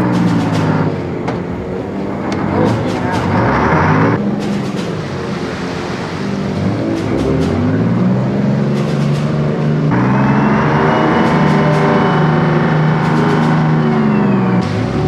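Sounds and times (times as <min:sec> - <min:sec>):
boat engine drone: 0:00.0 - 0:15.0
high whine gliding down: 0:05.0 - 0:15.0.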